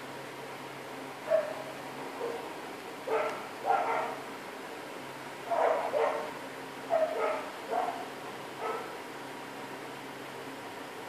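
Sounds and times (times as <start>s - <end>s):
dog yapping: 1.3s - 2.4s, 3.1s - 4.2s, 5.5s - 6.3s, 6.9s - 8.9s.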